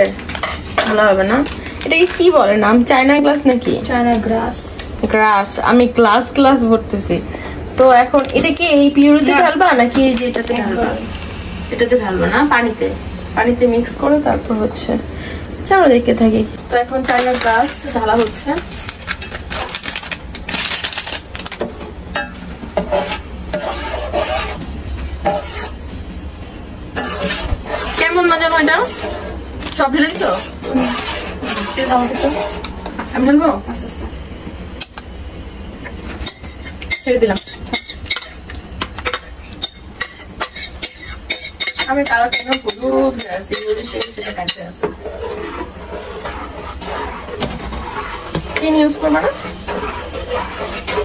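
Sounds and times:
metal spoon scraping bowl: 22.2s - 25.8s, 27.0s - 32.8s, 39.1s - 51.0s.

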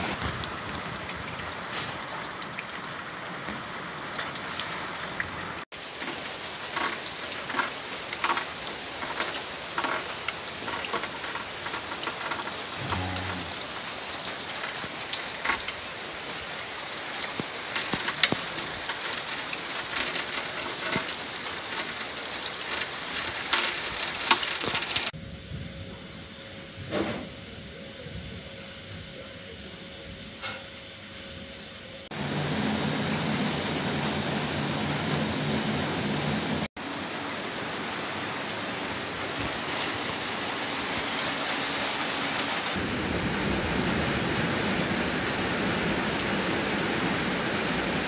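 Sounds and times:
heavy rain falling: 0.0s - 25.2s, 32.0s - 48.0s
sharp raindrop hits: 0.0s - 25.2s.

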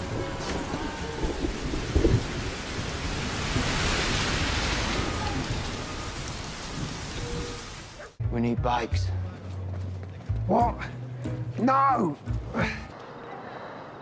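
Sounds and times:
heavy rain on street: 0.0s - 8.0s
thunder rumbling: 0.0s - 8.0s.

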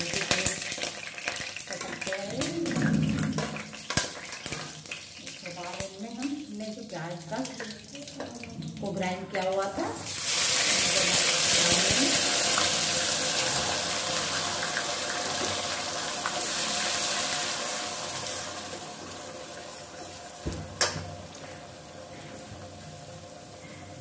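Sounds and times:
paste sizzling in hot oil: 0.0s - 2.7s, 10.0s - 20.5s.

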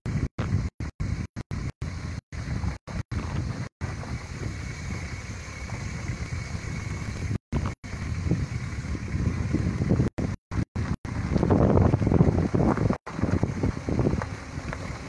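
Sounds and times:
wind buffeting the microphone: 2.3s - 15.0s.

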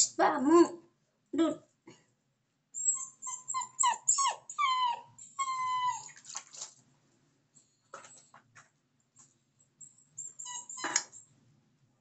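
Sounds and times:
puppy whining: 2.8s - 6.4s, 9.8s - 11.2s.

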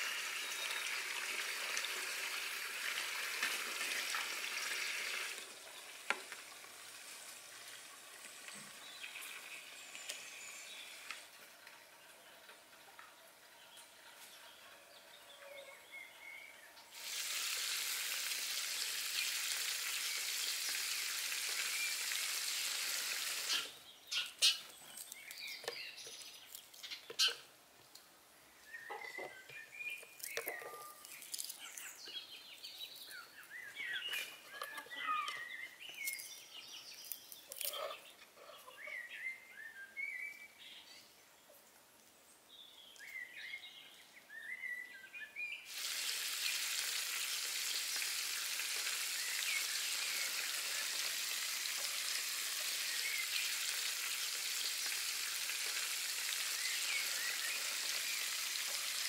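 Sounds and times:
small birds chirping: 7.6s - 17.0s, 23.4s - 59.0s
food sizzling on griddle: 17.0s - 23.7s, 45.7s - 59.0s.

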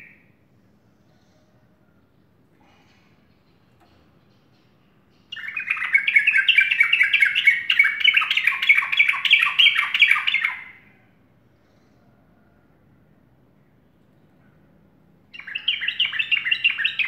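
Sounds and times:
bird singing chattering notes: 3.3s - 10.6s.

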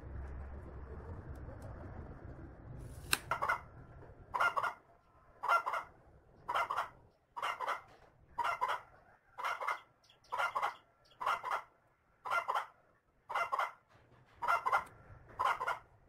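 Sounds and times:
sharp click: 3.0s - 3.4s
chicken clucking: 4.3s - 16.0s.

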